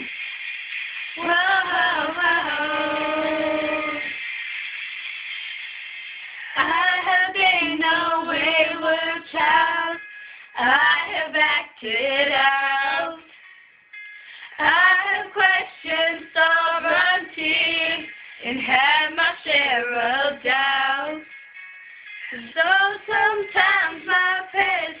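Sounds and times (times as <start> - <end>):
girls singing: 1.2 - 4.2, 6.4 - 13.3, 14.5 - 21.2, 22.3 - 25.0.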